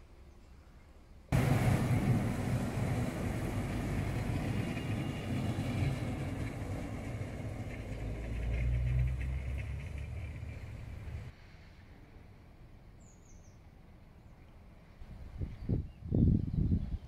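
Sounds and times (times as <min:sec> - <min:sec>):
diesel engine low hum: 0:01.3 - 0:11.4
wheels rumbling on rails: 0:01.3 - 0:12.0.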